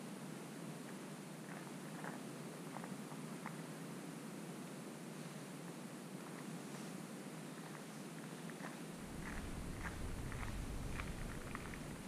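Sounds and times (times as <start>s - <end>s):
low rumble on microphone: 9.0s - 12.0s.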